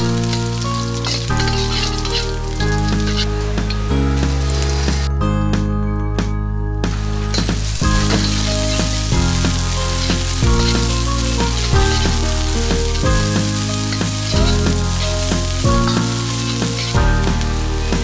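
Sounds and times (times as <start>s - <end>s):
onion sizzling in hot oil: 0.0s - 5.1s, 7.2s - 18.0s
light background music: 0.0s - 18.0s.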